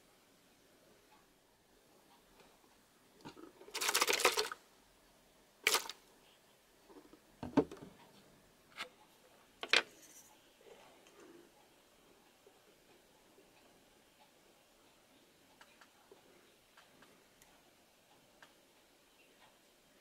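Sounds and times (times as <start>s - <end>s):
plastic containers rattling: 3.3s - 4.6s, 5.7s - 6.0s.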